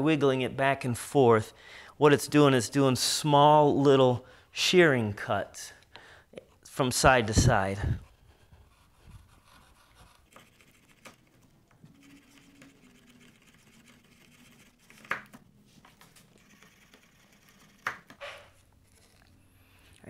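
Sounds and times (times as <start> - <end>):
chisel scraping wood: 16.3 - 19.3.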